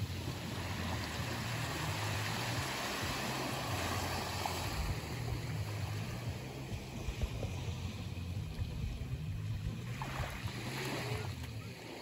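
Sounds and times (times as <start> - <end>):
low rumble: 0.0 - 11.6
small waves lapping on shore: 0.0 - 12.0.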